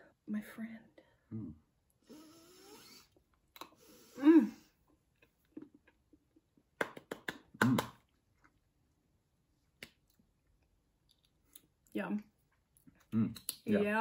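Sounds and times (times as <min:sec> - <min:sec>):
person humming mm: 0:01.3 - 0:03.1, 0:04.0 - 0:04.7, 0:07.6 - 0:07.9
lip smacks and tongue clicks: 0:03.1 - 0:03.8, 0:06.8 - 0:08.7, 0:09.7 - 0:11.9, 0:12.5 - 0:13.7.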